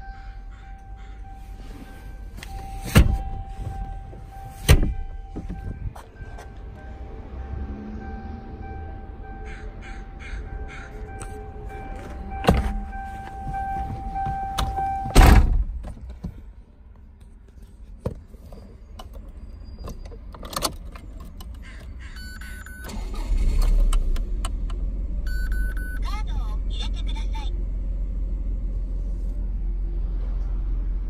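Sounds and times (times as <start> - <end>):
car door shutting: 2.4 - 6.6, 11.9 - 16.0
handling noise: 11.1 - 15.9.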